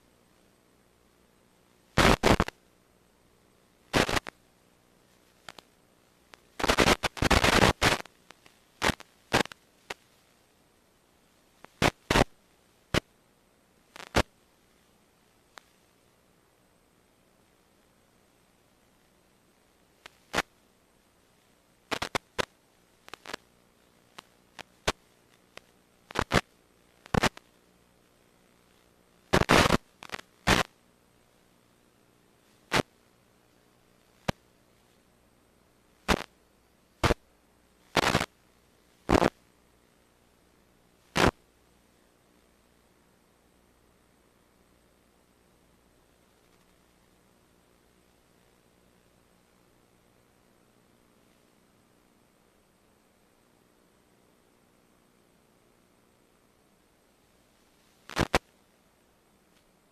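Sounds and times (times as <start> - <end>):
static hiss bursts: 1.7 - 2.7, 3.8 - 10.4, 11.5 - 13.2, 13.8 - 15.9, 19.7 - 31.4, 32.3 - 35.1, 35.8 - 41.5, 57.1 - 58.8.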